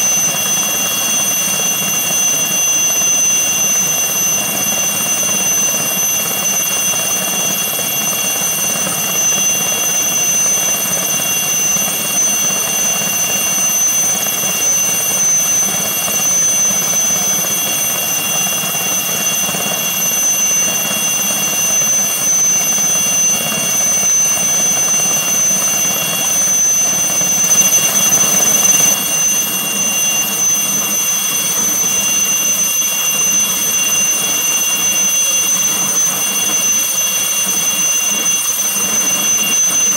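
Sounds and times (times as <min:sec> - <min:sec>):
helicopter rotor noise: 0:00.0 - 0:39.9
helicopter turbine whine: 0:00.0 - 0:39.9.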